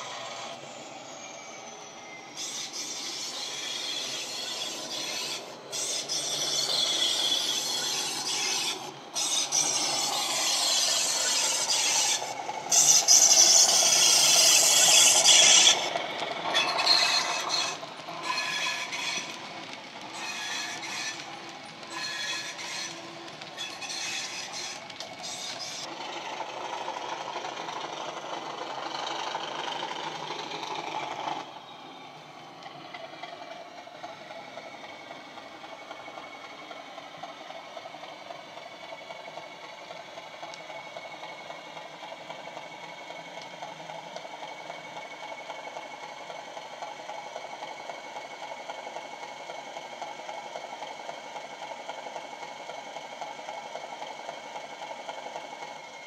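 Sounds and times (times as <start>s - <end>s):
model train wagons clattering on track: 2.8s - 31.5s.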